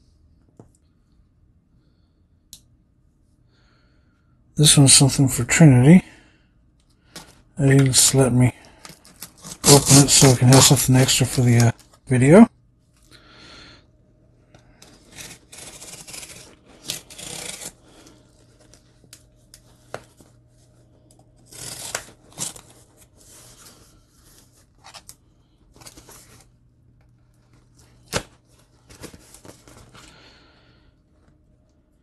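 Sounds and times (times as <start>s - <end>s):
knife slitting tape and cardboard: 14.8s - 17.8s, 21.4s - 23.5s.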